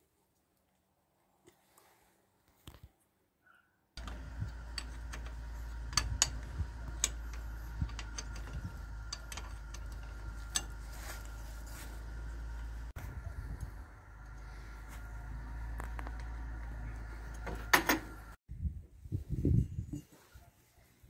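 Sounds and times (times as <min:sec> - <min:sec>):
steady low hum: 0:04.0 - 0:18.4.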